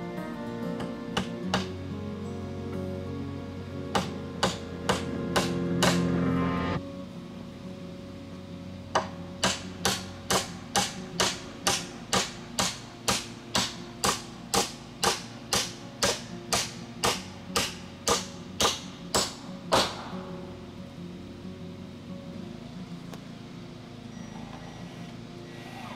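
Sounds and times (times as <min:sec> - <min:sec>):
hammer driving nails into wood: 0:00.8 - 0:01.7, 0:03.9 - 0:06.1, 0:09.0 - 0:20.1.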